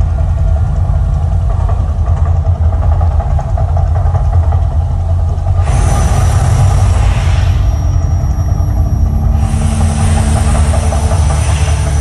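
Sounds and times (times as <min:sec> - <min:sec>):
deep rumble effect: 0:00.0 - 0:12.0
hissing rush: 0:05.6 - 0:12.0.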